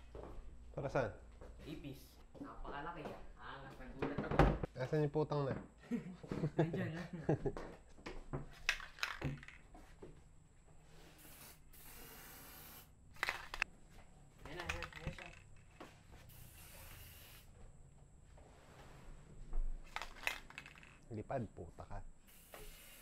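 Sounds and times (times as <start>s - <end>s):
aerosol spray can hissing: 11.0s - 13.6s, 16.3s - 17.5s, 22.3s - 23.0s.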